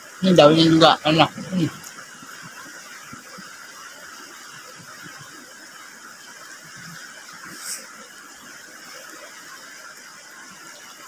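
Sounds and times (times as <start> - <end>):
river rushing over rocks: 0.0 - 11.0
short sharp hiss: 7.4 - 8.0.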